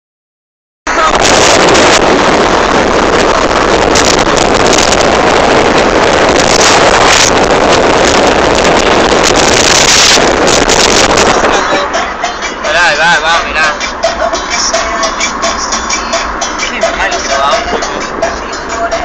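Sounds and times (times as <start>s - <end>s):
road noise: 0.9s - 19.0s
vehicle engine: 0.9s - 19.0s
wind buffeting microphone: 1.0s - 12.0s.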